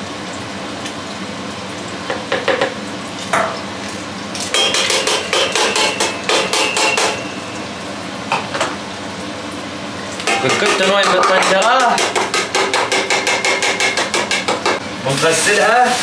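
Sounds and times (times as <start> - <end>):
spoon knocking on metal pot: 10.2 - 14.8.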